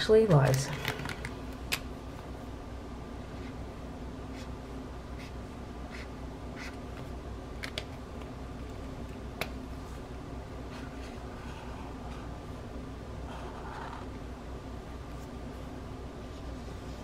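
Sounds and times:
marker strokes on paper: 0:04.3 - 0:04.5, 0:05.2 - 0:06.8.

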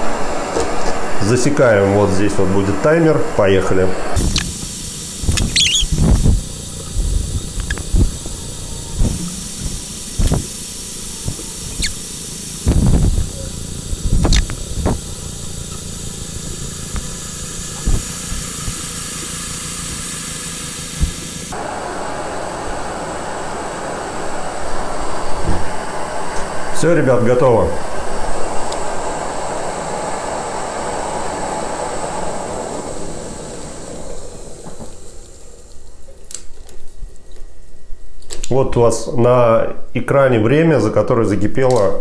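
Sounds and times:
gas stove burner hissing: 0:00.0 - 0:38.5
water coming to the boil: 0:04.2 - 0:21.7.

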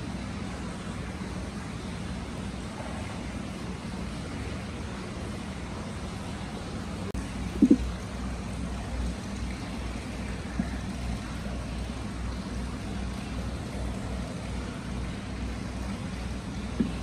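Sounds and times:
water flowing into a bath: 0:07.1 - 0:17.0
water plops and splashes: 0:07.4 - 0:08.3, 0:09.0 - 0:11.9, 0:15.8 - 0:17.0.

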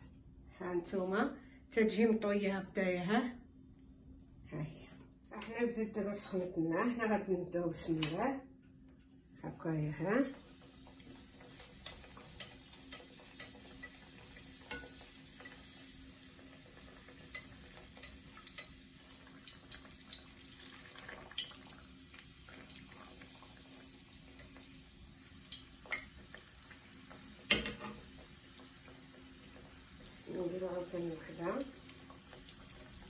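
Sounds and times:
dough sizzling in oil: 0:09.8 - 0:33.0.

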